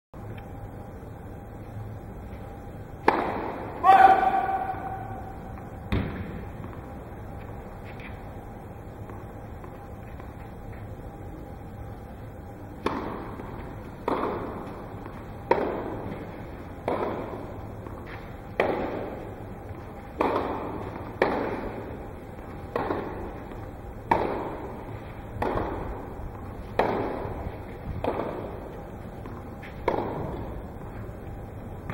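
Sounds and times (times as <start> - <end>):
tennis balls struck by rackets: 3.0 - 8.2, 12.7 - 31.9.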